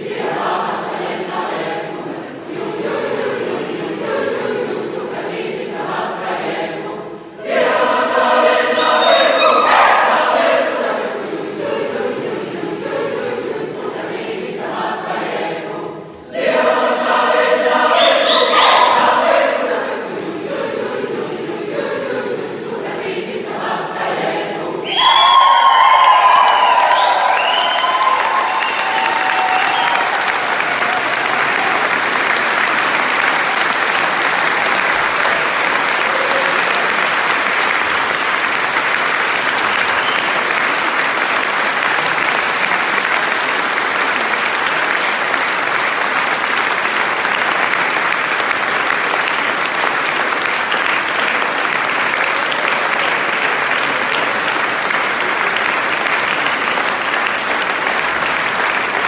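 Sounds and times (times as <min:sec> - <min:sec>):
large audience applause: 0:24.9 - 0:59.0.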